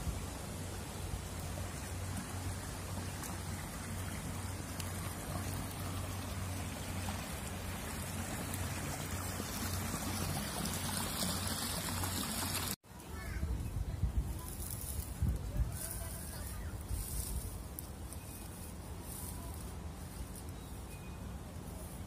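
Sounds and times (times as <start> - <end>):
water trickling down stone cascades: 0.1 - 12.8.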